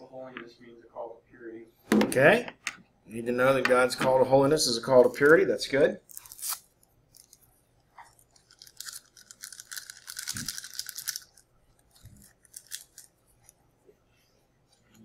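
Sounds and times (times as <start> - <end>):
plastic bottle rustling: 8.4 - 11.3.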